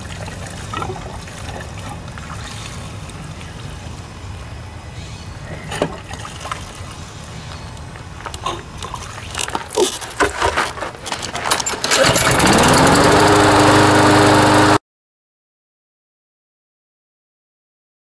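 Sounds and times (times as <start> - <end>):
handling clicks and knocks: 8.2 - 12.4
lawn mower engine running: 11.3 - 14.8.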